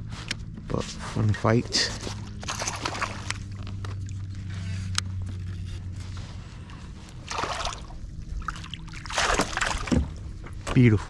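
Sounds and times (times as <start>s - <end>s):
short water splashes: 2.4s - 3.5s, 7.2s - 10.2s
water splashing and dripping: 2.4s - 3.5s, 7.3s - 10.3s.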